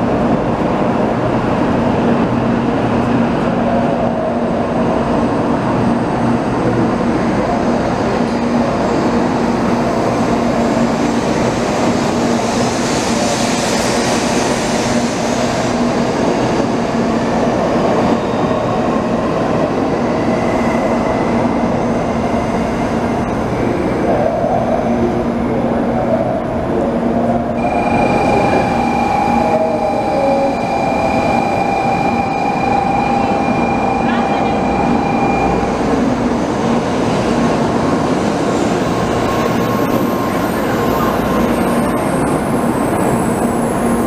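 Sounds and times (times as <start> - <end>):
train running noise with low hum: 0.0 - 44.0
steady high-pitched tone: 27.6 - 44.0.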